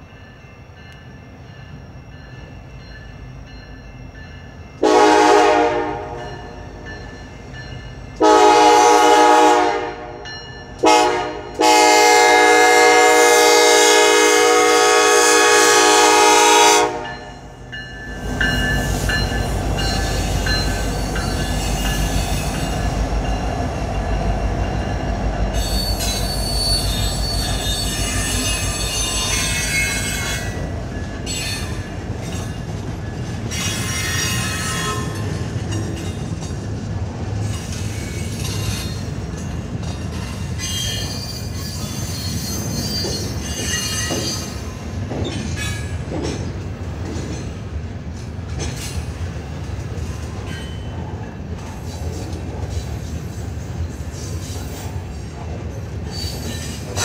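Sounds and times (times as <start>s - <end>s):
freight train rumbling past: 0.0s - 57.0s
locomotive air horn blasts: 4.8s - 6.3s, 8.2s - 10.2s, 10.8s - 17.2s
high wheel squeal: 25.6s - 30.6s, 40.6s - 44.7s, 56.0s - 57.0s.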